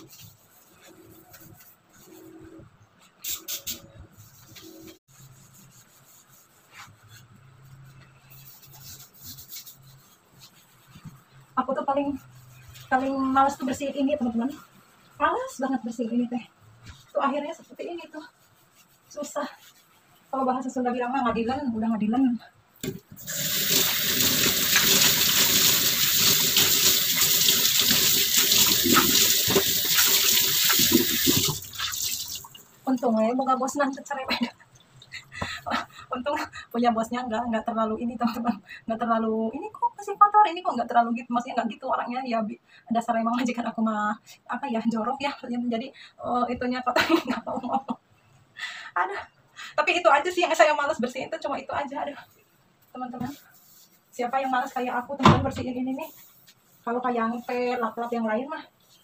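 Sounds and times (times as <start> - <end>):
water splashing: 23.3 - 32.7.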